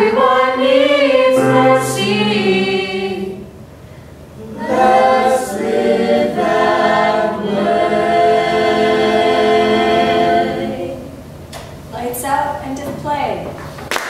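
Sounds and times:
group singing in harmony: 0.0s - 3.6s, 4.4s - 11.3s.

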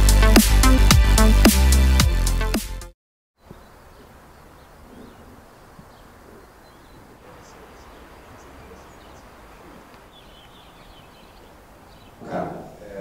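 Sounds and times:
faint bird chirps: 3.4s - 12.8s
background hiss and rumble: 3.4s - 13.0s.

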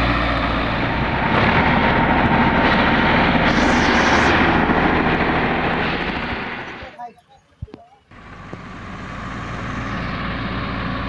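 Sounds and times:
tractor diesel engine under load: 0.0s - 7.0s, 8.1s - 11.0s
brief rush of higher noise: 3.4s - 4.6s.

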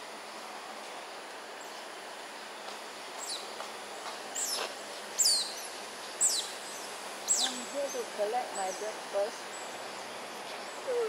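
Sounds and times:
steady outdoor hiss: 0.0s - 11.0s
otters chirping: 4.4s - 11.0s.

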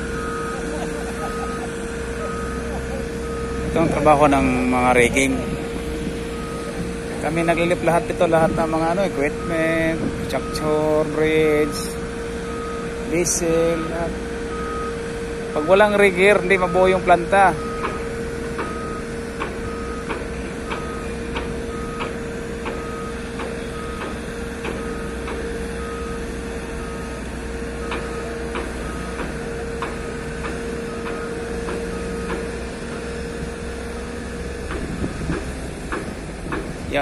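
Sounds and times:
warning beeper: 0.0s - 20.1s
diesel engine running: 0.0s - 37.0s.

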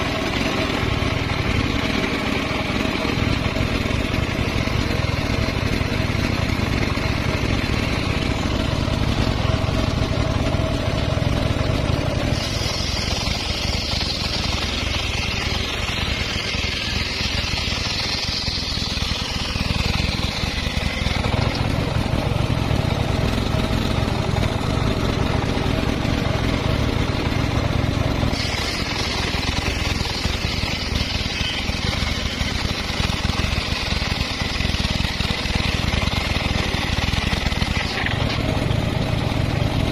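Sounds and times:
sawmill machine drone: 0.0s - 39.9s
saw blade cutting wood: 11.9s - 25.9s, 28.2s - 38.7s.

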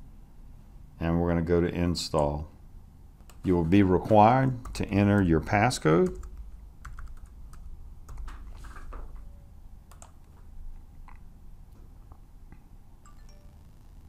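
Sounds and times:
keyboard keys tapping: 6.0s - 9.3s, 9.9s - 10.5s.

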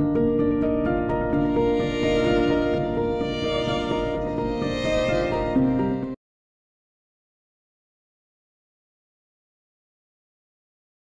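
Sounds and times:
soft bowed string music: 0.0s - 6.2s.

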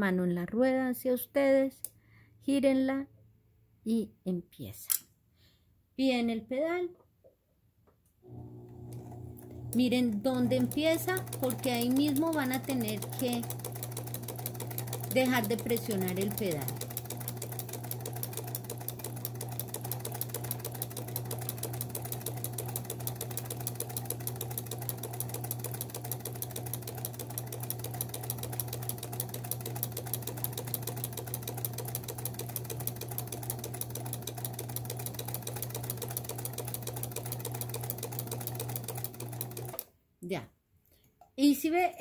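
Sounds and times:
sewing machine stitching: 8.3s - 39.9s.

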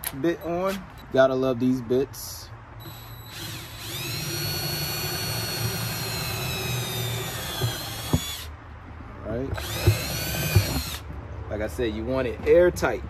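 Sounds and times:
cordless drill whining: 2.8s - 8.5s, 9.6s - 11.0s.

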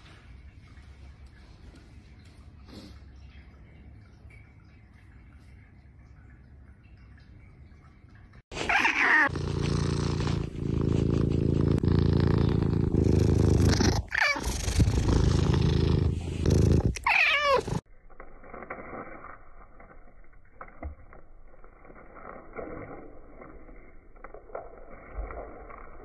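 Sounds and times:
kitten purring loudly: 8.9s - 17.8s.

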